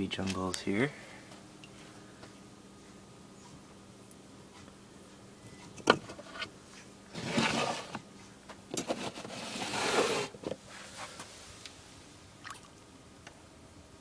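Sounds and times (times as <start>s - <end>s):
plastic tub scraping on shelf: 7.1s - 8.0s, 8.8s - 10.4s.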